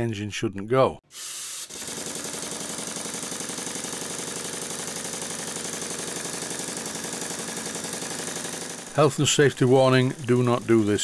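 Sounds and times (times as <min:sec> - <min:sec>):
hiss of escaping air: 0:01.1 - 0:01.8
model steam engine exhaust puffs: 0:01.1 - 0:11.0.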